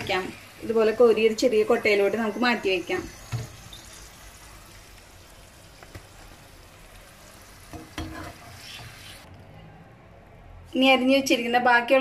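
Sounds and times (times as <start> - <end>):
potatoes sizzling in oil: 0.0 - 9.3.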